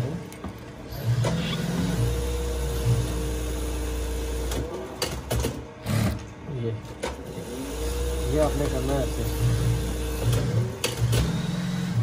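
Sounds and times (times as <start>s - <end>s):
sewing machine stitching: 7.2s - 12.0s.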